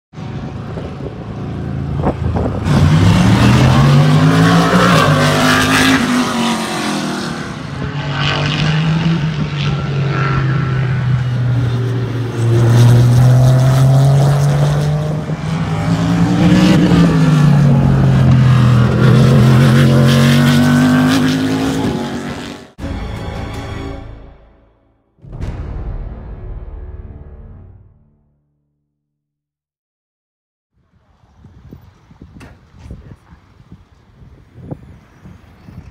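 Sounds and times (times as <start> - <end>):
race car engines passing: 0.2 - 22.8.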